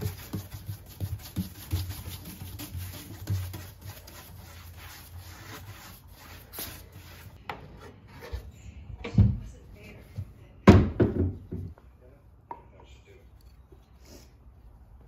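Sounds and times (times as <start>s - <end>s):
sandpaper rubbing on wood: 0.0s - 7.4s.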